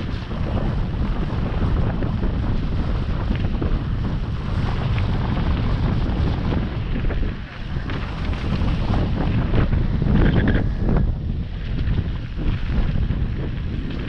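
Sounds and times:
bike tyres rumbling on gravel: 0:00.0 - 0:14.0
wind buffeting microphone: 0:00.0 - 0:14.0
small clicks and rattles: 0:10.1 - 0:10.7.

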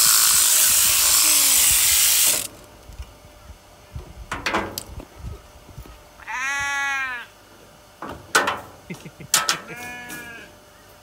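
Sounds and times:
shearing handpiece running: 0:00.0 - 0:02.6.

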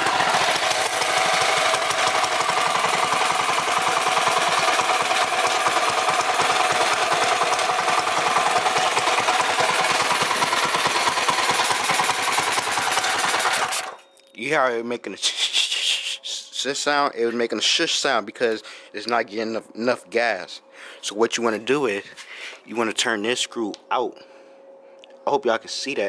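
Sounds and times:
small engine chugging: 0:00.0 - 0:14.0.

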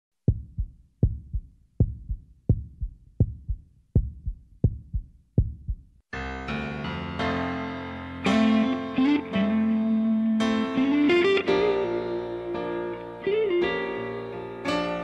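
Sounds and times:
heartbeat thumps: 0:00.2 - 0:06.0
held piano-like chords: 0:06.2 - 0:15.0.

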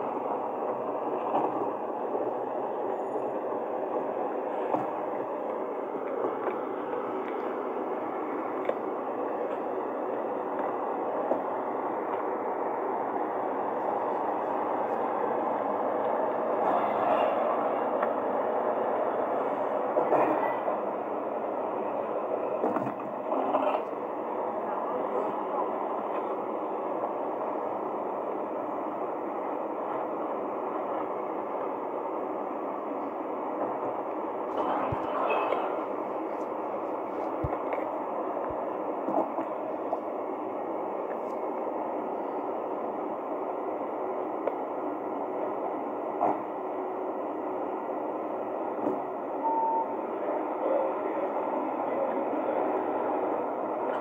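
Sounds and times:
reversing alarm beep: 0:49.4 - 0:50.0.

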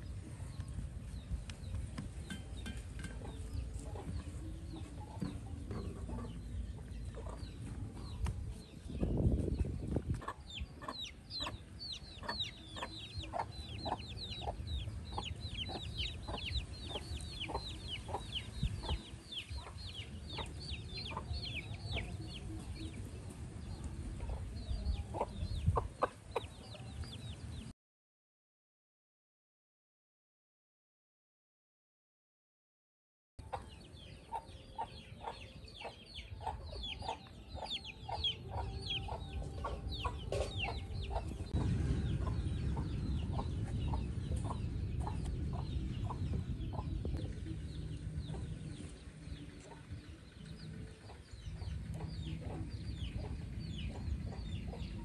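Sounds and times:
birds chirping: 0:00.0 - 0:27.7, 0:33.4 - 0:55.0
steady low hum: 0:36.4 - 0:55.0.

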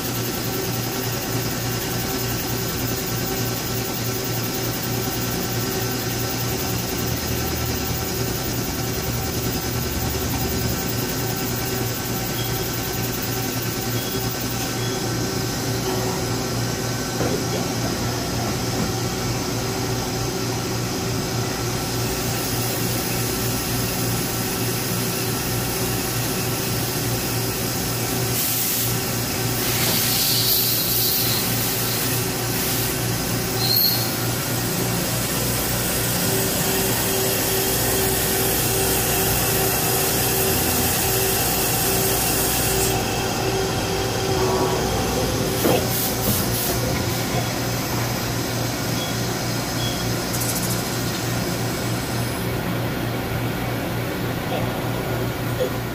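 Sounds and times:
hiss of cutting and coolant: 0:00.0 - 0:52.6
lathe hum and whine: 0:00.0 - 0:55.9
high squeak: 0:33.5 - 0:34.3.

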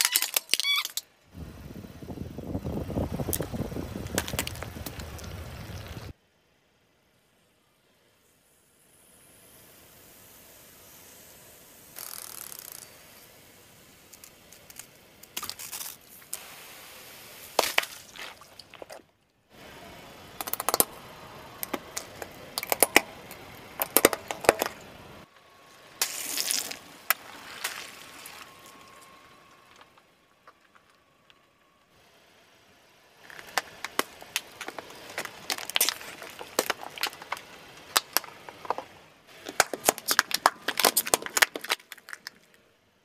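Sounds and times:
tyre crushing plastic: 0:33.2 - 0:42.5.

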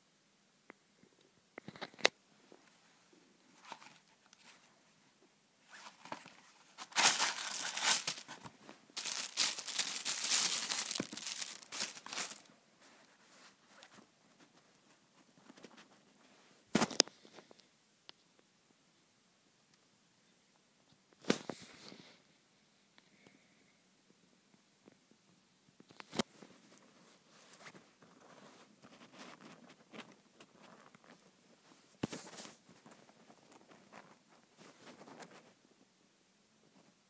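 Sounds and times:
plastic bag crinkling: 0:05.7 - 0:12.5.

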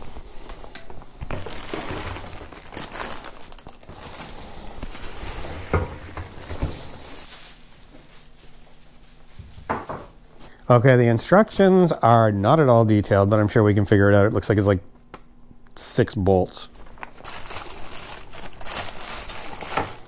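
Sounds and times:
packaging rustling and crinkling: 0:01.2 - 0:09.7, 0:16.8 - 0:20.0.

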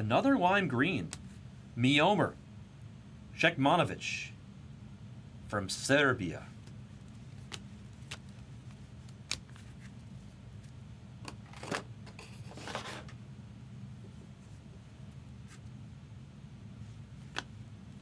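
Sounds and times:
low steady hum: 0:00.0 - 0:18.0
cards rustling: 0:06.6 - 0:10.8.

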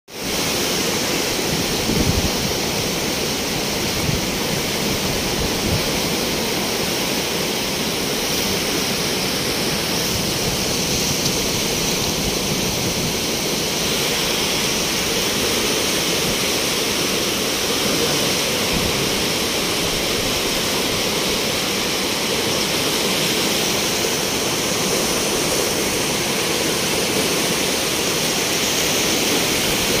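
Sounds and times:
floodwater rushing in river: 0:00.1 - 0:30.0.

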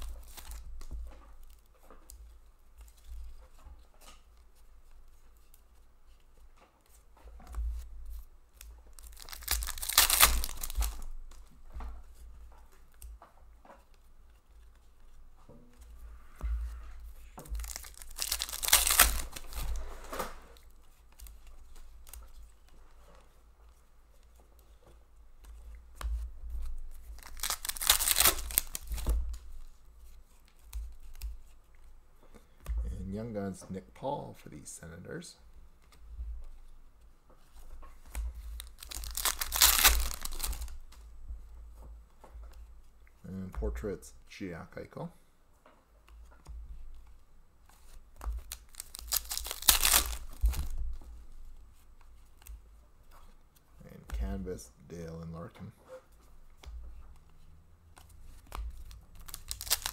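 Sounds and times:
foil wrappers tearing and crinkling: 0:00.0 - 0:00.7, 0:08.9 - 0:11.2, 0:17.5 - 0:20.6, 0:26.9 - 0:29.4, 0:38.5 - 0:40.8, 0:48.3 - 0:50.8, 0:58.7 - 0:59.9
cards clicking and flicking: 0:08.6 - 0:11.4, 0:17.6 - 0:19.8, 0:27.2 - 0:29.2, 0:38.0 - 0:40.7, 0:47.8 - 0:50.7, 0:58.0 - 0:59.9.

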